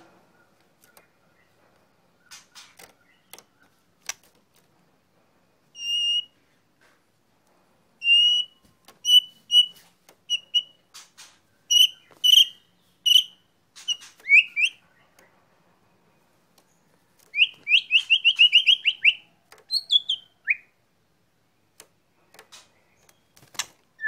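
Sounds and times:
sharp bird clicks: 0.4s - 1.5s, 2.2s - 4.7s, 8.8s - 15.4s, 16.5s - 20.6s, 21.6s - 24.0s
bird whistling song: 5.8s - 6.4s, 8.0s - 10.8s, 11.7s - 15.1s, 17.3s - 20.8s.

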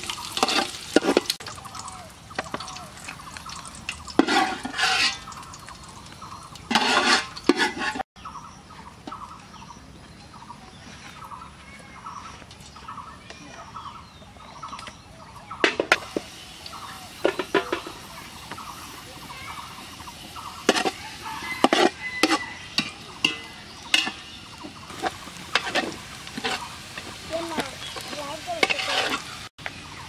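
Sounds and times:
metal ladle scraping a pot: 0.3s - 1.3s, 3.9s - 5.5s, 6.7s - 8.0s, 19.8s - 27.2s, 27.8s - 29.5s
bird calling: 8.2s - 30.0s.

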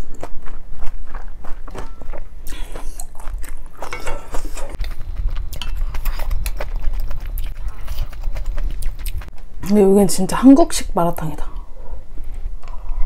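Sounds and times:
person chewing food: 0.0s - 9.5s
wet mouth clicks: 2.4s - 3.6s, 5.6s - 9.3s.

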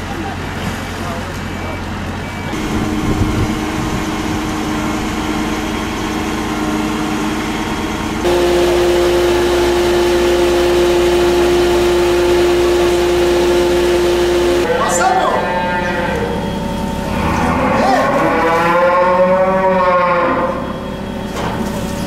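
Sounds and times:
engines idling: 8.2s - 14.7s.

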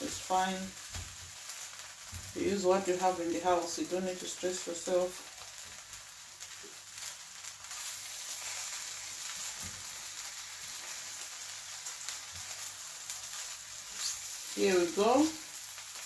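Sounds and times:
fried rice sizzling in metal pan: 0.0s - 16.0s.

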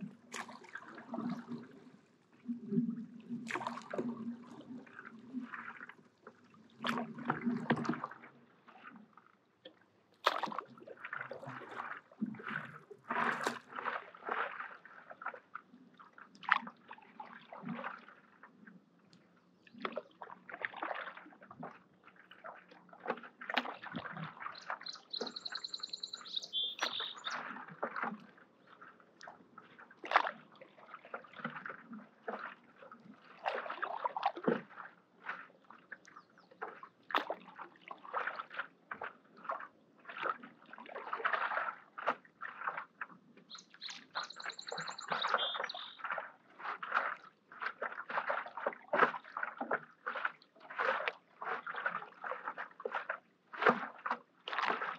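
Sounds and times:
paddle splashing through water: 0.0s - 18.6s, 19.2s - 54.9s
bird calling: 24.6s - 27.4s, 43.5s - 46.0s.

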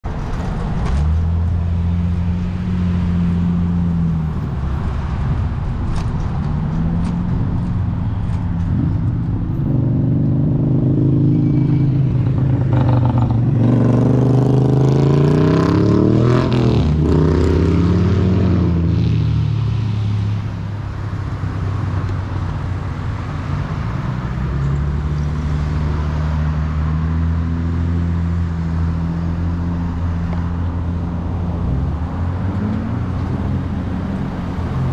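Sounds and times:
vehicle engines running: 0.0s - 34.9s
vehicles accelerating and passing: 0.0s - 34.9s.

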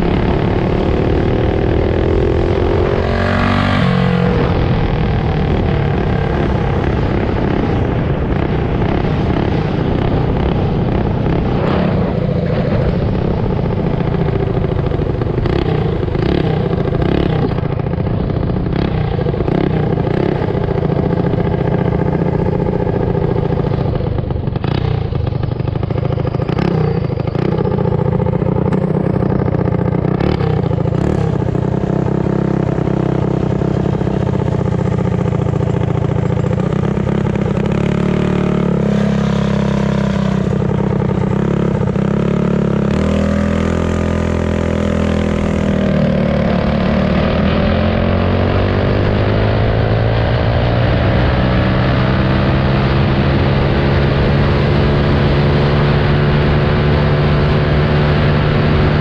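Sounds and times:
small bike engine running: 0.0s - 59.0s
bike rattling: 12.6s - 46.0s.

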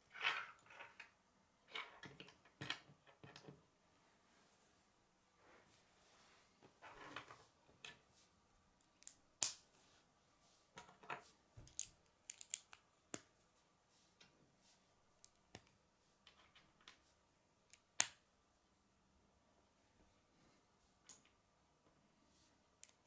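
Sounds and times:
plastic pieces clicking together: 11.7s - 12.8s.

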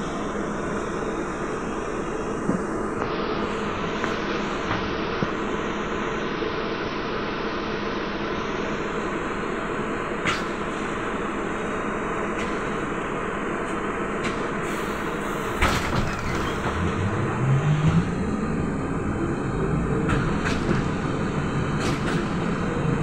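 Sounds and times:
trolleybus cabin rumble: 0.0s - 23.0s
low hum rising in pitch: 16.2s - 20.4s.

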